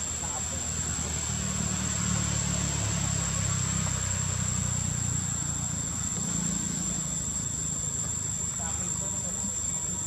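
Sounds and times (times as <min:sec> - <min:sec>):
low engine-like rumble: 0:00.0 - 0:10.0.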